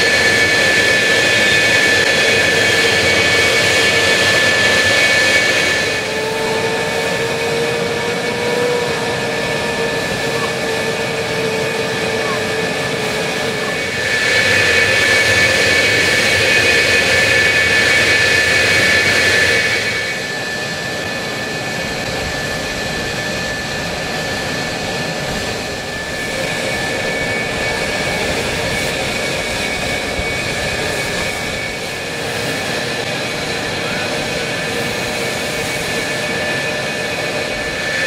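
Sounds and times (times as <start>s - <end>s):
jet engines idling: 0.0s - 38.0s.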